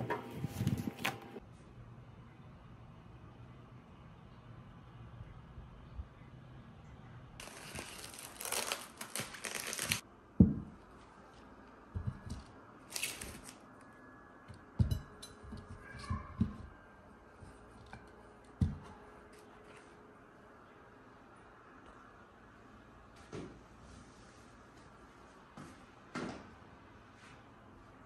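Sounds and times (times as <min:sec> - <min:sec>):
crinkling rustle: 0:07.4 - 0:10.0, 0:12.8 - 0:13.6.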